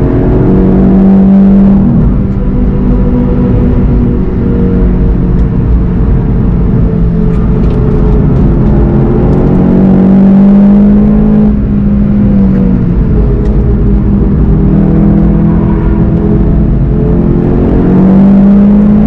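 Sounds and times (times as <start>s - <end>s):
car engine under load: 0.0s - 19.0s
tyre and road noise: 0.0s - 19.0s.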